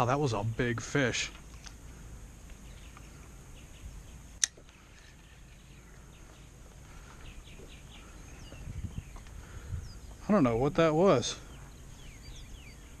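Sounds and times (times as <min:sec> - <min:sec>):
faint bird chirps: 0:00.0 - 0:13.0
low wind rumble: 0:00.0 - 0:13.0
sharp click: 0:04.4 - 0:04.7.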